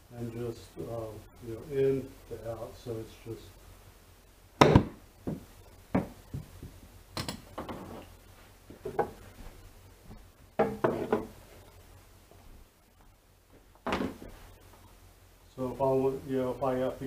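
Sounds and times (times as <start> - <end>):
quiet knocks and thuds: 4.6 - 8.0, 8.7 - 11.6, 13.5 - 14.4.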